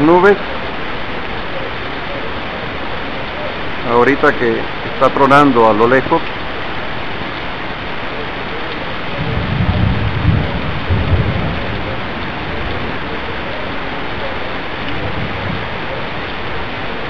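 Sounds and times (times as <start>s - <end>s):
steady rain: 0.0s - 17.0s
distant thunder rumbling: 6.7s - 17.0s.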